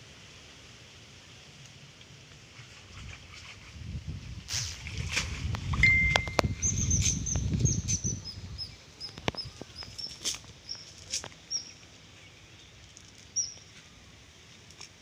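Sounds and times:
bird chirping: 0:05.8 - 0:13.8.

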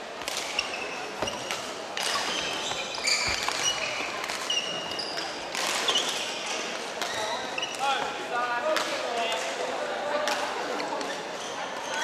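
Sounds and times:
shoes squeaking on wooden floor: 0:00.4 - 0:06.0.

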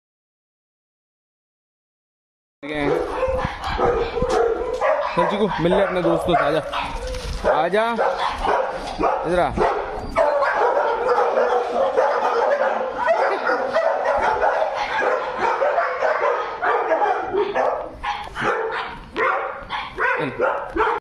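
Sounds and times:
dog barking and yipping: 0:02.8 - 0:21.0.

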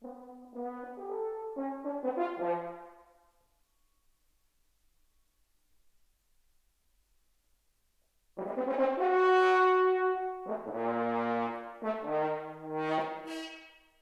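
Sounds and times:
french horn playing held notes: 0:08.4 - 0:14.0.

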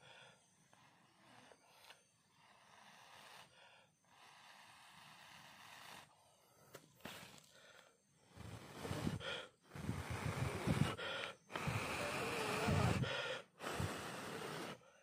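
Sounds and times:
man gasping for breath: 0:08.8 - 0:14.7.

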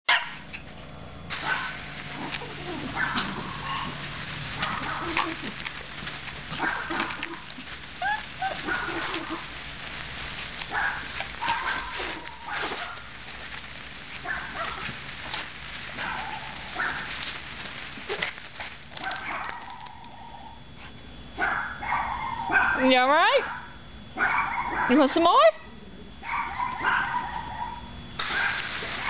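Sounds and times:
puppy barking and yipping: 0:00.1 - 0:00.5, 0:01.4 - 0:09.6, 0:10.6 - 0:13.1, 0:14.2 - 0:15.0, 0:16.0 - 0:17.2, 0:19.0 - 0:20.6, 0:21.4 - 0:25.0, 0:26.2 - 0:29.0
water splashing: 0:01.3 - 0:19.6, 0:28.2 - 0:29.0.

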